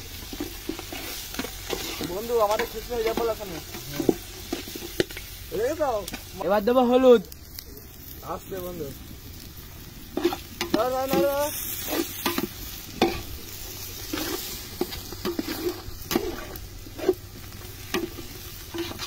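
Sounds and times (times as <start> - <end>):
food sizzling in oil: 0.0 - 19.0
spoon scraping in a metal pot: 14.0 - 17.3, 17.9 - 19.0.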